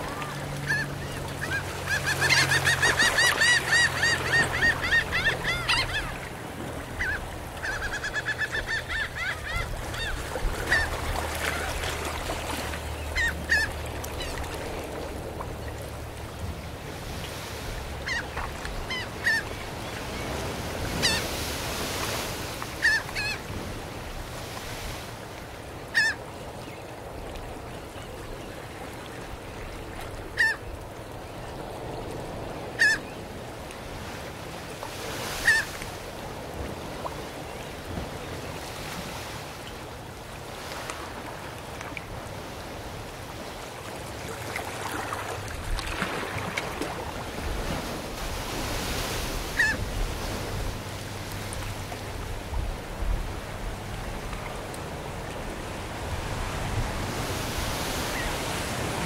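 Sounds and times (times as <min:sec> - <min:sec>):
seagulls calling: 0:00.0 - 0:12.1, 0:12.9 - 0:14.6, 0:17.9 - 0:21.4, 0:22.8 - 0:23.4, 0:25.9 - 0:26.3, 0:30.2 - 0:30.7, 0:32.3 - 0:33.3, 0:35.3 - 0:35.8, 0:49.4 - 0:50.6
gentle surf on shore: 0:00.0 - 0:59.0.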